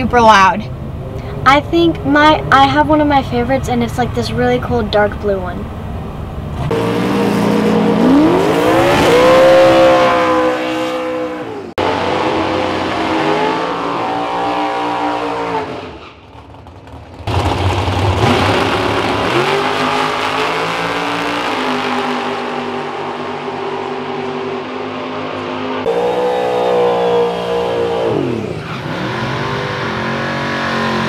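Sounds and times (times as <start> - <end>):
racing car engines revving hard: 6.6 - 16.1, 17.2 - 31.0.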